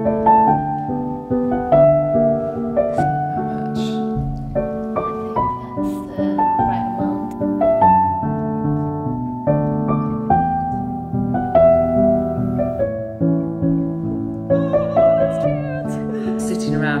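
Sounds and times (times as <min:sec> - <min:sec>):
slow gentle solo piano: 0:00.0 - 0:17.0.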